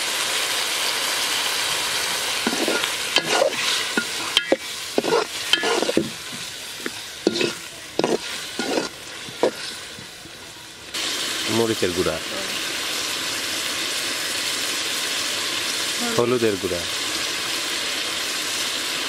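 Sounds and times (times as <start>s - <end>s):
water sizzling in hot oil: 0.0s - 19.0s
metal ladle scraping a pot: 2.4s - 10.0s.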